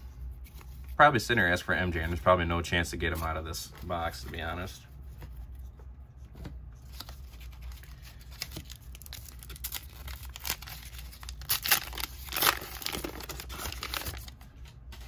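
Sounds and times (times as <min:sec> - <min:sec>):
foil card pack tearing and crinkling: 0:06.9 - 0:15.0.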